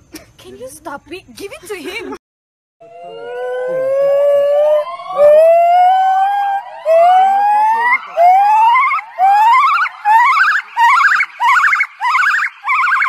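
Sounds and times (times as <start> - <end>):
gibbon whooping call: 2.8 - 13.0.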